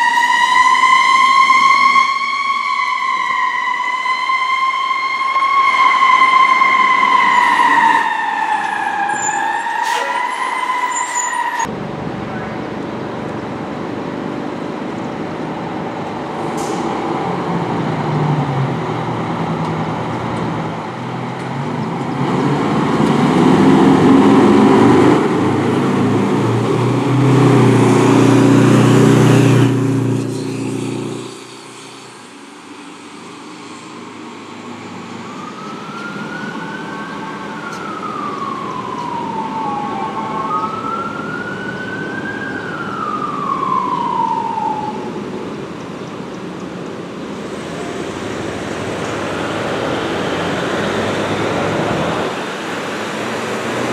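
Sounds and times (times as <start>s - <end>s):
siren wailing: 0.0s - 12.7s, 23.4s - 45.8s
fire truck diesel engine passing: 0.0s - 53.9s.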